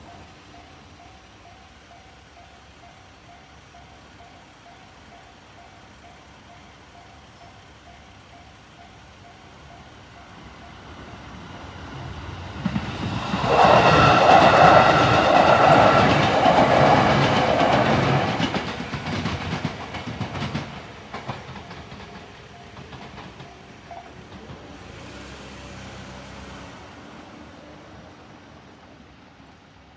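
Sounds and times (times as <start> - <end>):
crossing warning bell ringing: 0.0 - 12.7, 20.6 - 24.9
electric train passing: 0.0 - 29.9
wheels clattering over rail joints: 6.5 - 25.8.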